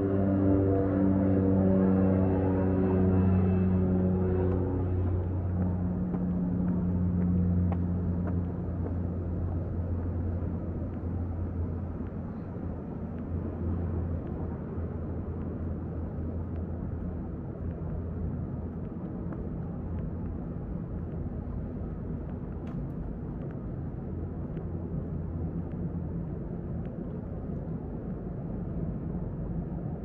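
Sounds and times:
musical drone: 0.0 - 9.3
distant traffic rumble: 0.0 - 30.0.

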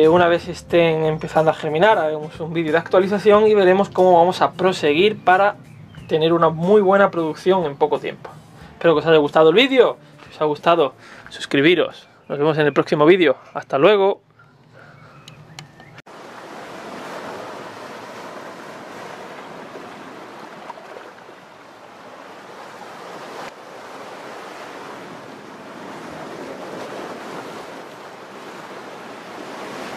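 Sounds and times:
waves washing over rocks: 16.1 - 29.9.

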